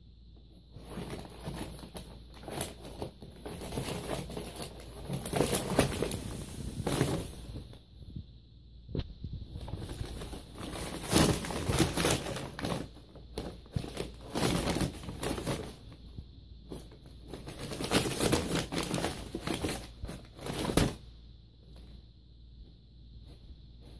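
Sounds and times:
paper bag crinkling: 0.8 - 7.7, 9.6 - 15.8, 16.8 - 21.0.

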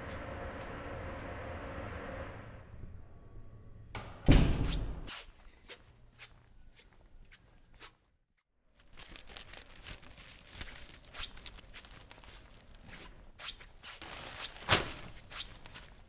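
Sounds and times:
paper and bag rustling: 8.7 - 16.0.

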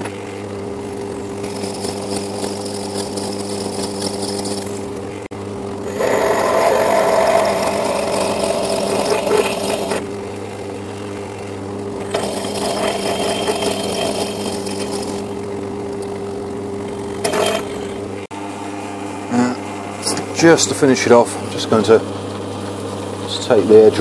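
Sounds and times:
lathe motor hum: 0.0 - 18.6, 20.4 - 24.0
drill cutting metal: 1.0 - 4.9, 5.8 - 10.1, 12.0 - 15.5, 17.1 - 18.0.

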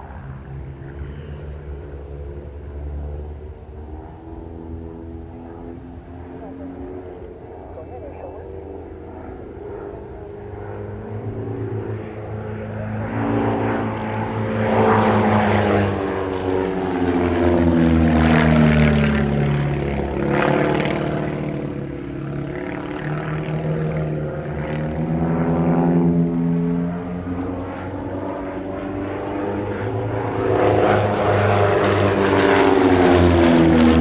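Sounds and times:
propeller plane engines: 0.0 - 34.0.

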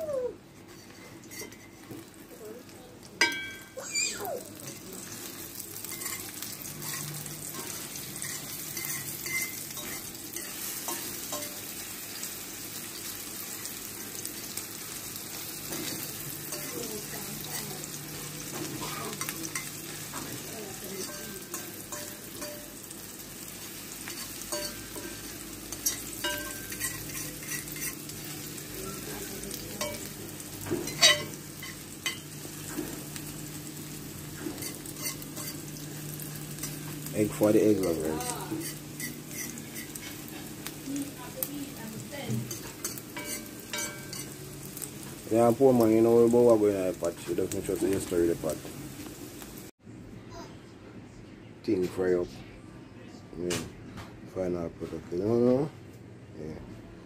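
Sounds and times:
eggs sizzling in a frying pan: 0.5 - 49.8
fork scraping and tapping a pan: 0.7 - 2.1, 5.9 - 11.6, 21.0 - 22.7, 24.1 - 28.1, 30.7 - 32.9, 34.4 - 35.7, 37.8 - 40.5, 42.3 - 44.3.

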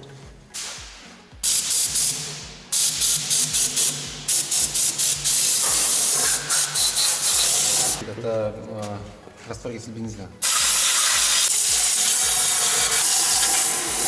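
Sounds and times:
spray gun hissing blasts: 0.6 - 8.0, 10.4 - 14.0.

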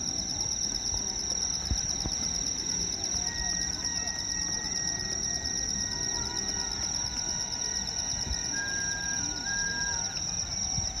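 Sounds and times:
insects trilling: 0.0 - 11.0.

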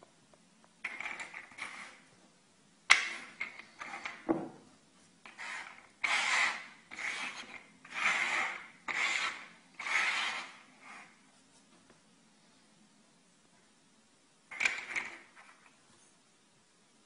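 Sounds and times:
treats scraping across wooden tabletop: 0.9 - 2.1, 5.3 - 11.2.

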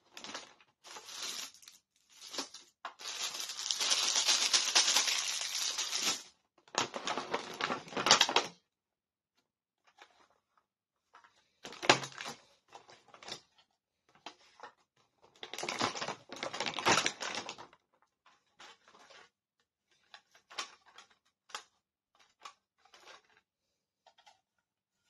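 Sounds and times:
plastic toy pieces rattling: 0.9 - 6.3.

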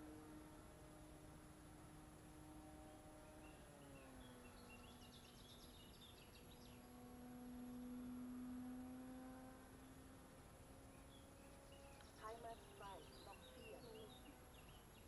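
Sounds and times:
model plane motor humming: 6.4 - 14.7
faint bird chirps: 10.9 - 15.0.

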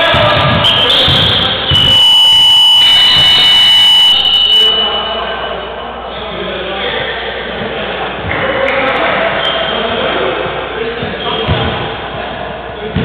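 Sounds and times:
scoreboard buzzer high tone: 1.7 - 5.6.

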